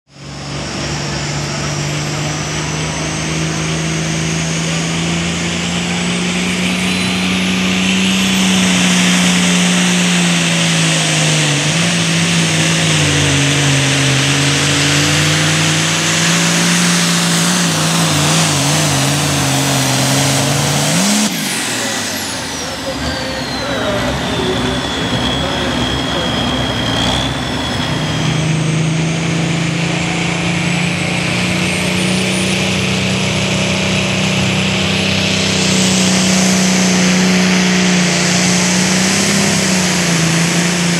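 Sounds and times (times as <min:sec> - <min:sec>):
diesel tractor engine running flat out: 0:00.1 - 0:40.9
turbo whine: 0:00.1 - 0:40.9.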